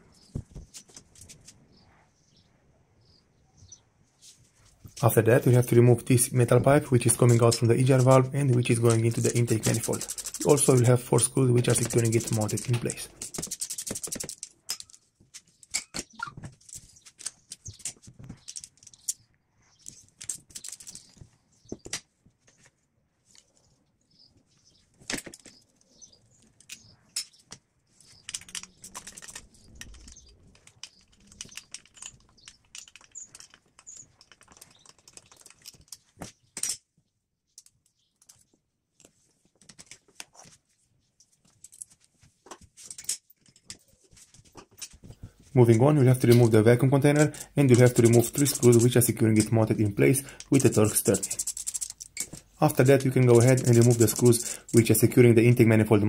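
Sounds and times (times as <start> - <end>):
hand tools clicking and clinking: 4.8 - 19.2, 26.4 - 36.8, 41.5 - 55.8.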